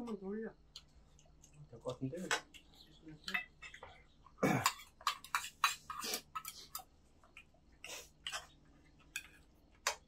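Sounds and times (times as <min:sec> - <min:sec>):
chopsticks and spoons clinking bowls: 0:02.2 - 0:07.5, 0:08.2 - 0:10.0.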